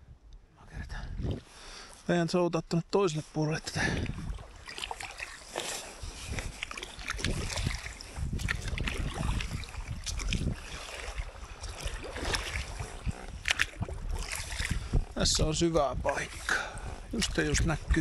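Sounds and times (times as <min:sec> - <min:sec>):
wind rumbling on microphone: 0:00.0 - 0:01.7, 0:03.6 - 0:18.0
paddle splashing in water: 0:03.7 - 0:15.4.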